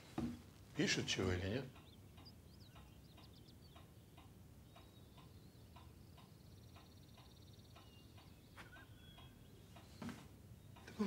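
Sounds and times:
clock ticking: 0:01.6 - 0:09.9.

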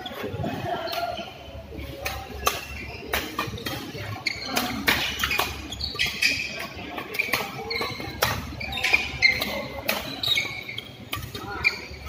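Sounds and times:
shoes squeaking on court: 0:00.0 - 0:12.0
rackets hitting shuttlecock: 0:02.0 - 0:10.3.

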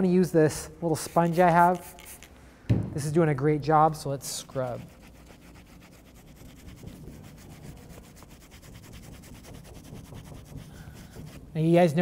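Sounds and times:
pad rubbing on leather: 0:04.4 - 0:11.5.

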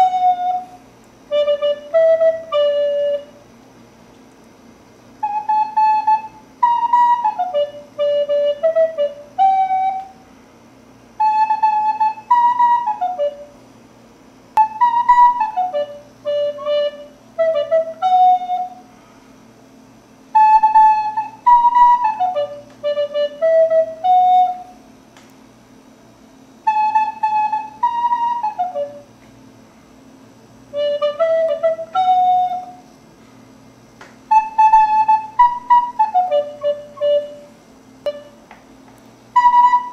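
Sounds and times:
recorder melody: 0:00.0 - 0:03.4, 0:05.2 - 0:10.2, 0:11.2 - 0:13.5, 0:14.6 - 0:18.8, 0:20.3 - 0:24.8, 0:26.6 - 0:29.1, 0:30.7 - 0:32.8, 0:34.3 - 0:38.5, 0:39.3 - 0:39.9
faint steady hum: 0:00.0 - 0:39.9.

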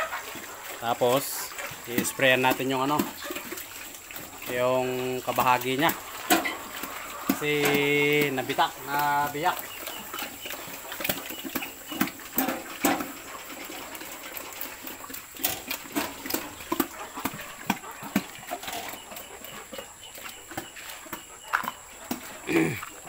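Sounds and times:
farm animal grunts and calls: 0:00.0 - 0:23.0
knocks and clatters: 0:05.3 - 0:07.9, 0:10.1 - 0:23.0.

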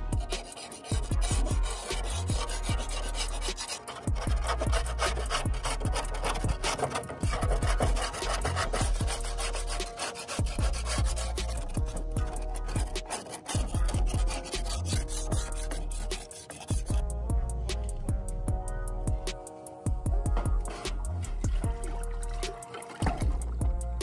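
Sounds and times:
metal scraper rasping on rust: 0:00.0 - 0:17.1.

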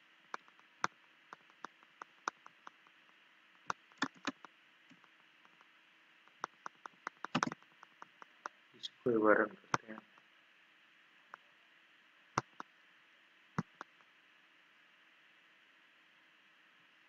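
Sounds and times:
mouse clicks: 0:00.3 - 0:03.0, 0:03.6 - 0:05.7, 0:06.3 - 0:08.6, 0:12.4 - 0:12.7, 0:13.6 - 0:14.0
keyboard key presses: 0:01.3 - 0:02.9, 0:03.6 - 0:05.6, 0:06.3 - 0:08.5, 0:12.4 - 0:12.7, 0:13.6 - 0:14.0.

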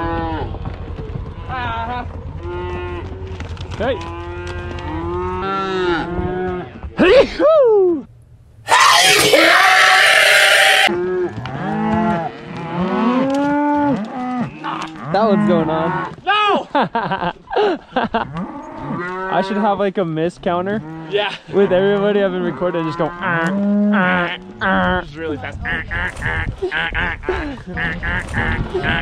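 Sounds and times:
man yelling: 0:08.7 - 0:10.9
cows mooing: 0:08.7 - 0:16.2, 0:20.8 - 0:24.6.

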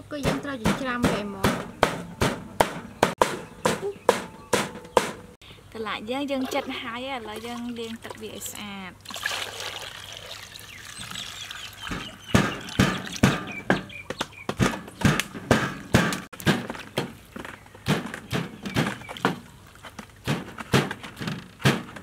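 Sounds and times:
cleaver chopping on wooden board: 0:00.2 - 0:05.2, 0:11.9 - 0:17.1, 0:17.8 - 0:19.4, 0:20.2 - 0:22.0.

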